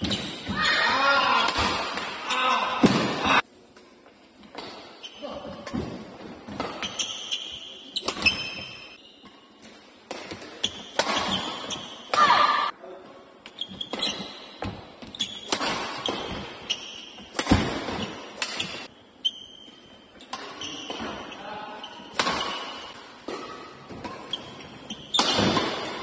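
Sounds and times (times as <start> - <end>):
shoes squeaking on court floor: 0.0 - 0.8, 4.0 - 12.1, 13.4 - 26.0
racket hitting shuttlecock: 8.0 - 12.7, 13.6 - 18.9, 20.2 - 21.2, 22.1 - 26.0.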